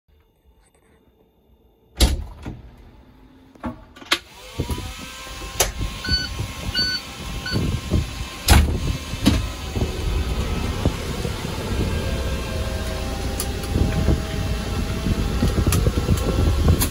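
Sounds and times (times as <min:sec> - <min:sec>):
fire engine starting up: 0:04.0 - 0:16.9
short electronic beeps: 0:06.0 - 0:07.6.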